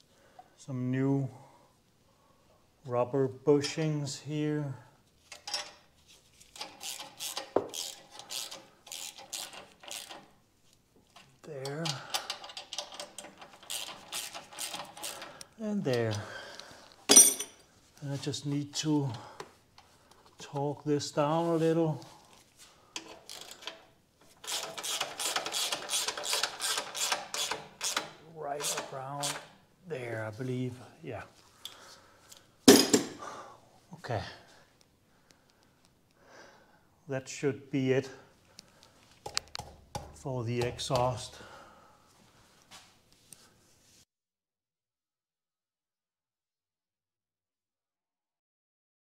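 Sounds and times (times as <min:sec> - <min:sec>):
hand ratchet clicking: 0:06.5 - 0:10.3, 0:11.6 - 0:15.5, 0:23.0 - 0:29.5.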